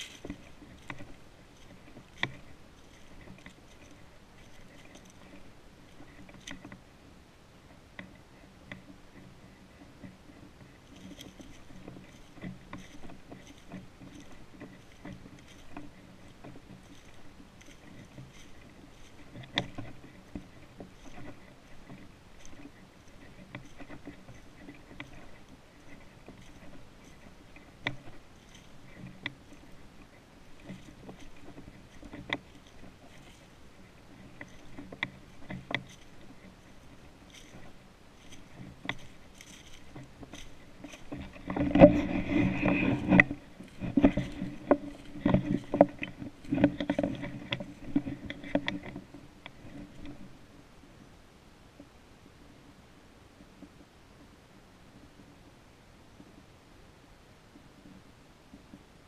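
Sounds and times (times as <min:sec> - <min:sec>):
footsteps crunching dry leaves: 0:00.0 - 0:05.5, 0:20.2 - 0:47.0.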